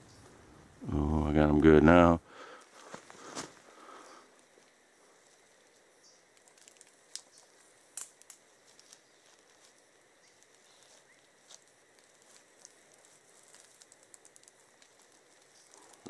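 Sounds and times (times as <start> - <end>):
dry leaves crackling: 4.6 - 16.0.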